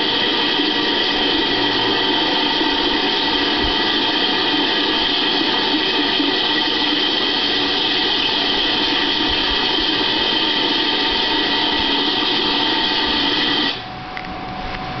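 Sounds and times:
rushing noise: 0:00.0 - 0:13.8.

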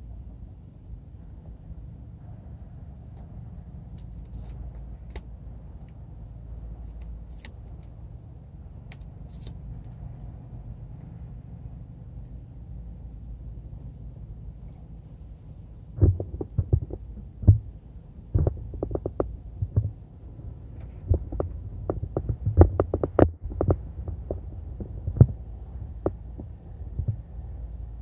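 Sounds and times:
steady low hum: 0:00.0 - 0:28.0
sharp knocks and thumps: 0:16.0 - 0:20.1, 0:20.7 - 0:27.6.

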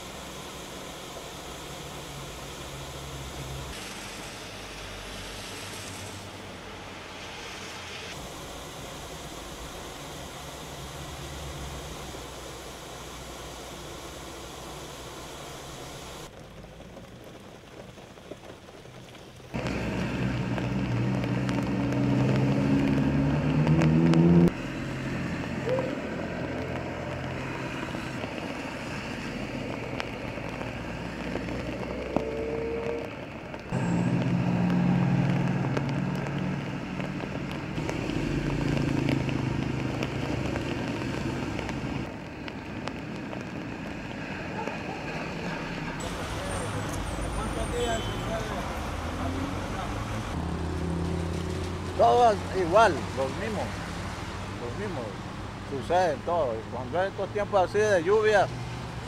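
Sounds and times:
falling rain: 0:00.0 - 0:59.0
vehicle engines passing: 0:19.5 - 0:59.0.

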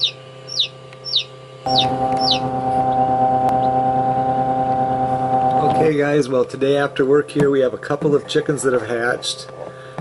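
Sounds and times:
chick peeping: 0:00.0 - 0:03.8
steady hum: 0:00.0 - 0:10.0.

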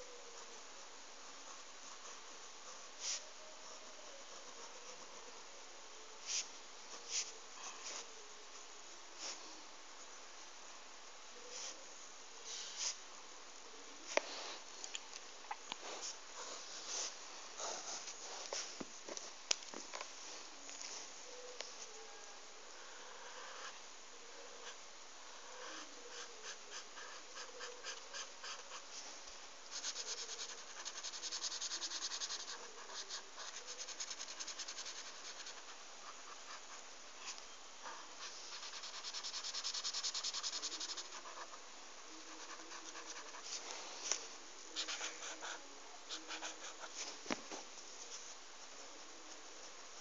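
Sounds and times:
marker scratching on paper: 0:29.7 - 0:37.4, 0:38.0 - 0:41.6, 0:42.2 - 0:44.2, 0:44.8 - 0:47.1.

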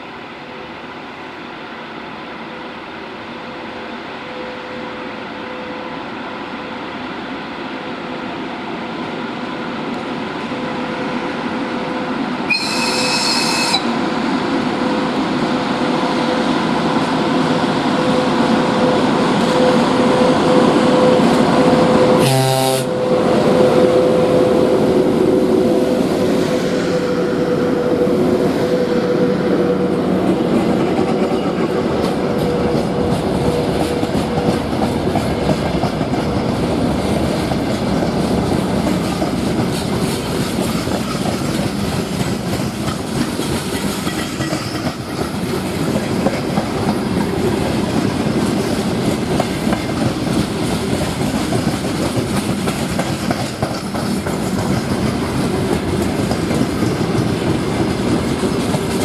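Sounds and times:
electric locomotive humming: 0:00.0 - 0:59.0
short high-pitched signal: 0:12.5 - 0:13.9
train horn blast: 0:12.5 - 0:13.9, 0:19.6 - 0:27.2.

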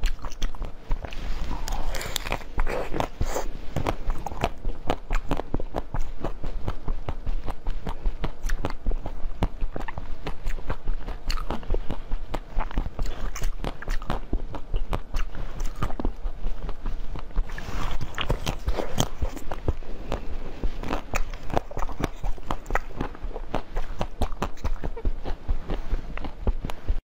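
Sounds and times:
crunching and chewing ice: 0:00.0 - 0:06.4, 0:17.7 - 0:25.4.

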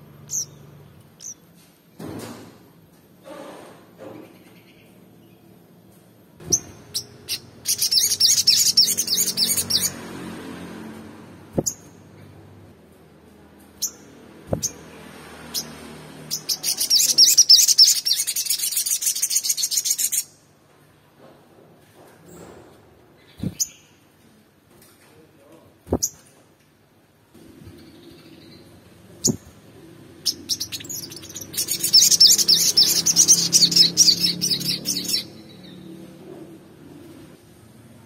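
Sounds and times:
bird chirping and trilling: 0:00.2 - 0:01.4, 0:06.4 - 0:10.1, 0:11.6 - 0:12.3, 0:13.8 - 0:20.4, 0:23.2 - 0:24.0, 0:25.9 - 0:26.2, 0:27.5 - 0:35.9.

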